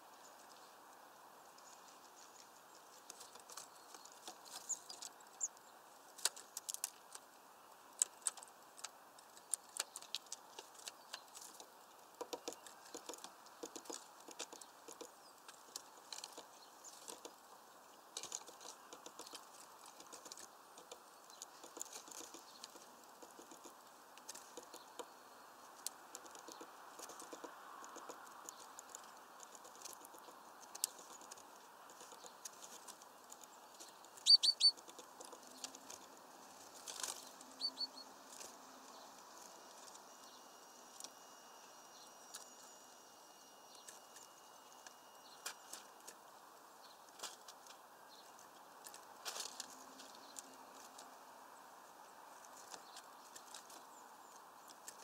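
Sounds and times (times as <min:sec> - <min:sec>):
faint background hiss: 0:00.0 - 0:55.0
woodpecker pecking: 0:01.6 - 0:40.1.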